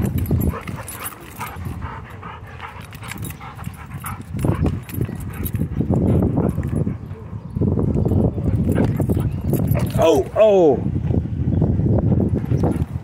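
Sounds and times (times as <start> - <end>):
dog panting quickly: 0.1 - 7.3.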